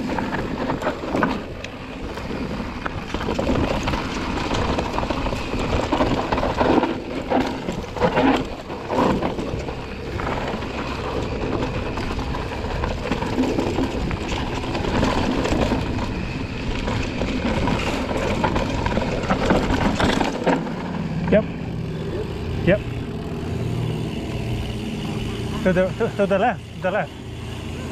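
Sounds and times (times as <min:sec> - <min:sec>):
wind noise on microphone: 0:00.0 - 0:20.4
bike rattling over bumps: 0:00.0 - 0:27.9
tyres rolling over gravel: 0:00.0 - 0:27.9.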